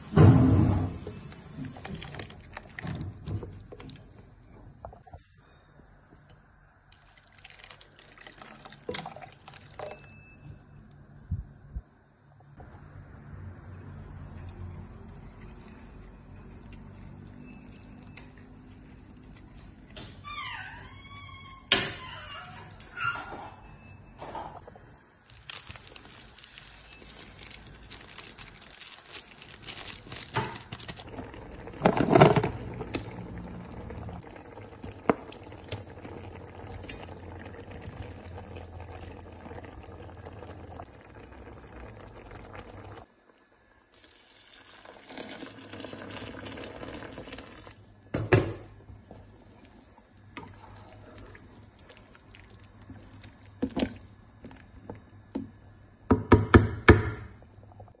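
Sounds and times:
soup simmering: 0.9 - 4.4, 6.8 - 10.3, 14.2 - 20.3, 24.6 - 56.1
liquid pouring: 1.5 - 4.0, 6.9 - 10.2, 25.3 - 43.1, 43.9 - 47.8, 49.4 - 55.1.

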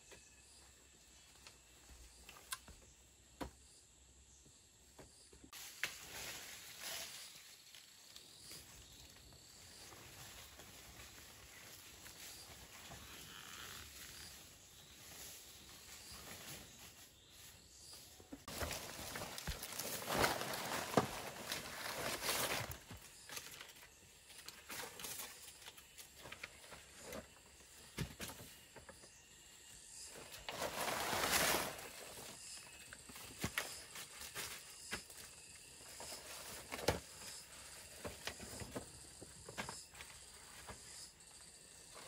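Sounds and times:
banana leaves rustling: 5.5 - 27.3, 30.1 - 38.8.

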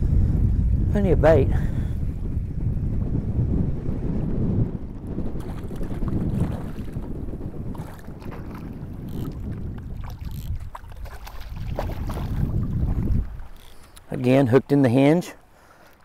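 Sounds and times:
wind buffeting microphone: 0.0 - 15.7
water splashes: 5.3 - 14.8
water sloshing around legs: 5.4 - 7.1, 7.7 - 14.3
light clicks: 13.5 - 14.1.

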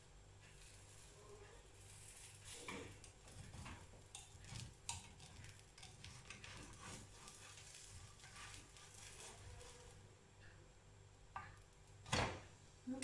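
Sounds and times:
pancake sizzling in a pan: 0.0 - 10.1
spatula scraping and tapping pan: 0.4 - 10.6.

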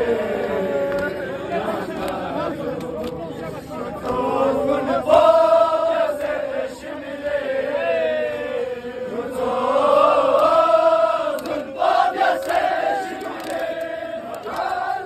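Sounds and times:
men chanting a lament: 0.0 - 15.0.

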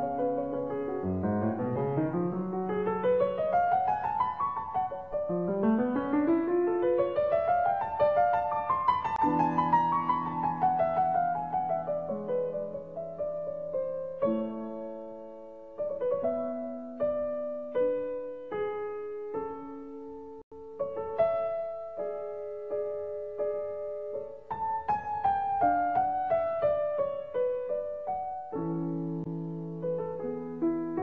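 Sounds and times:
solo piano music: 0.0 - 31.0.

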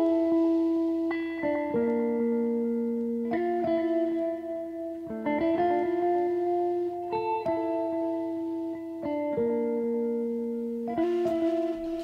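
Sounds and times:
background music held notes: 0.0 - 12.0.

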